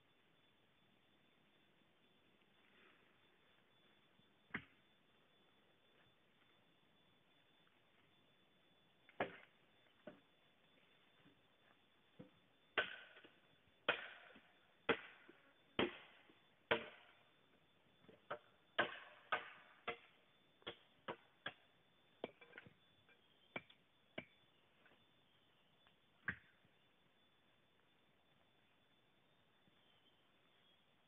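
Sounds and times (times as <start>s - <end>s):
machete chopping bamboo: 12.8s - 13.0s, 13.9s - 14.1s, 18.8s - 21.6s.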